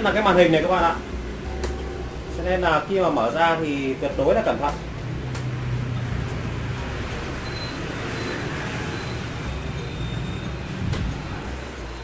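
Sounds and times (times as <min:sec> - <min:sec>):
low rumble and hiss: 0:00.0 - 0:06.8.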